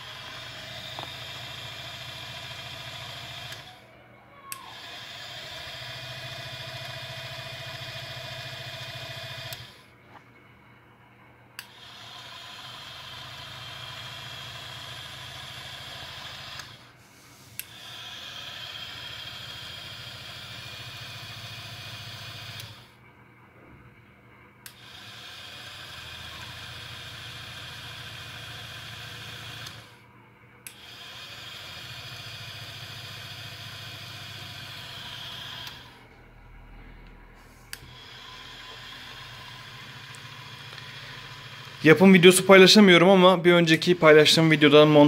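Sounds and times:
small electric motor whining: 0.0 - 9.9, 11.6 - 23.0, 24.6 - 30.0, 30.7 - 36.2, 37.0 - 45.0
motor switch click: 0.3 - 1.3, 11.6 - 12.0, 16.3 - 16.8, 28.4 - 29.8, 34.6 - 36.0.

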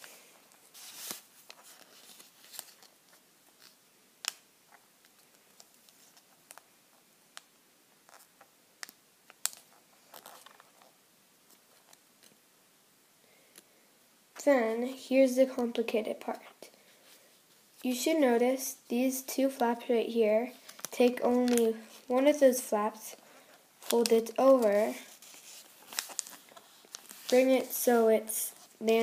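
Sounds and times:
paper fold clicks and scrapes: 0.0 - 6.6, 23.8 - 27.7
paper crinkling and rustling: 0.0 - 6.7, 8.1 - 12.4, 20.6 - 22.2, 23.1 - 29.0.

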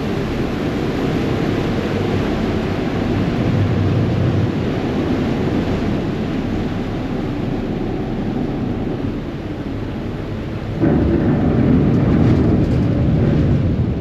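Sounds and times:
ship engine drone: 0.0 - 14.0
wake water rushing: 0.0 - 14.0
wind buffeting microphone: 0.0 - 14.0.

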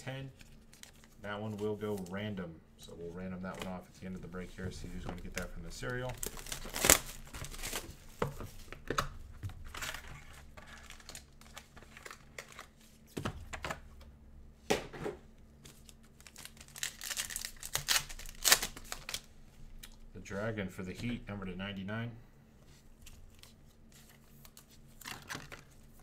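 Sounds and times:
foil wrappers crinkling and tearing: 0.4 - 2.2, 5.2 - 8.2, 9.6 - 12.8, 15.6 - 20.0, 23.0 - 26.0.

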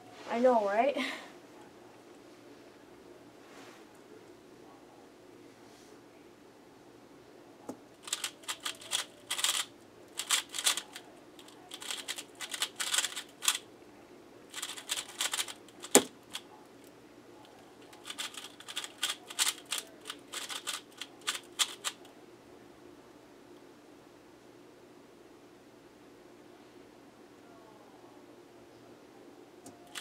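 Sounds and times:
puzzle cube turning clicks: 8.0 - 13.6, 14.5 - 16.4, 18.0 - 22.0
hand slapping keyboard: 14.6 - 16.1.

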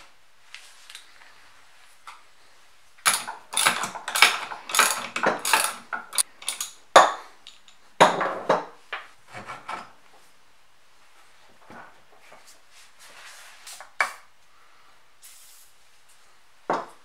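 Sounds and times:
metal parts rattling and clinking: 3.0 - 6.8, 7.4 - 7.8.

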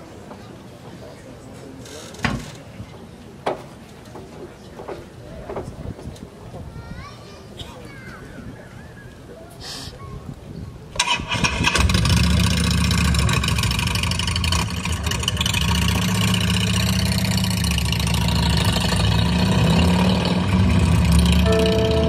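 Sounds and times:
amplified engine-like rumble: 12.1 - 22.0.

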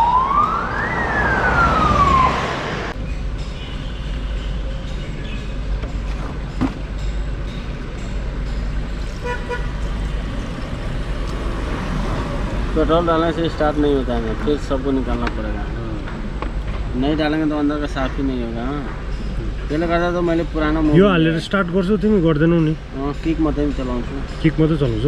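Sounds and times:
siren-like wailing tone: 0.0 - 3.0.

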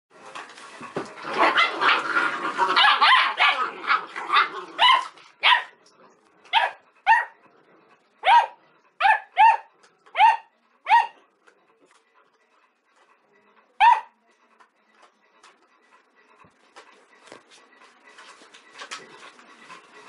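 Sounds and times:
puppies yapping and growling: 1.2 - 5.8.

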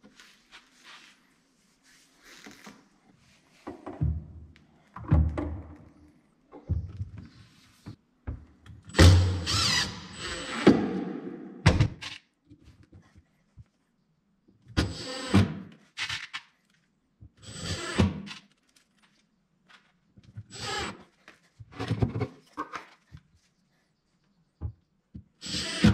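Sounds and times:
drill driving screws: 8.9 - 11.0, 14.8 - 15.5, 17.4 - 18.4, 20.5 - 21.0, 25.4 - 25.9.

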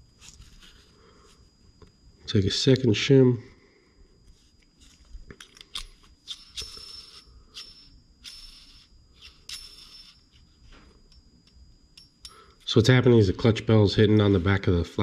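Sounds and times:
small metal parts clicking: 5.4 - 10.2.

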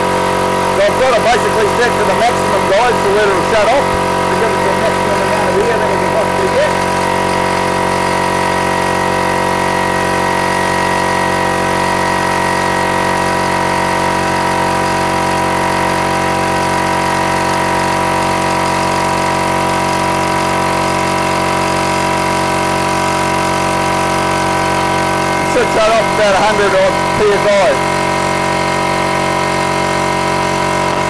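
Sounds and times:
air compressor running: 0.0 - 31.0.

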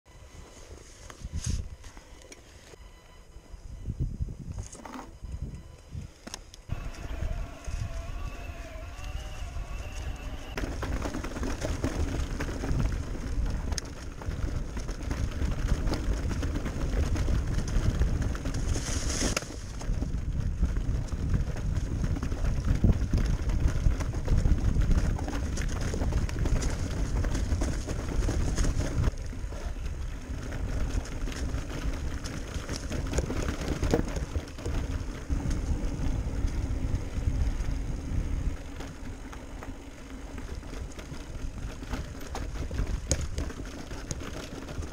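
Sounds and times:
wind on microphone: 3.5 - 39.3
bike frame rattling: 6.7 - 44.9
tyres rumbling on dirt: 6.7 - 44.9.

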